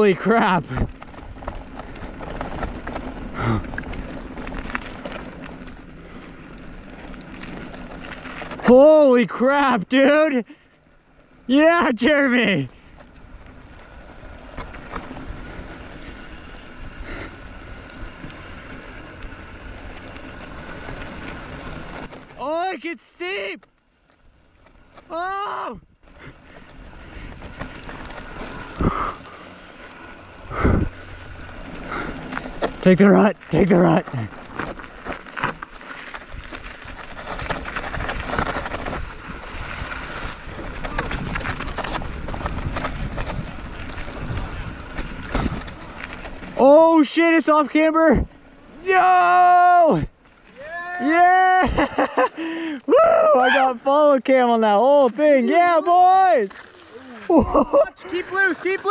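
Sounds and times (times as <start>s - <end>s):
tyres rumbling on rock: 0.0s - 10.3s, 24.4s - 58.9s
bike rattles and clicks: 0.0s - 58.9s
wind on microphone: 30.5s - 31.1s.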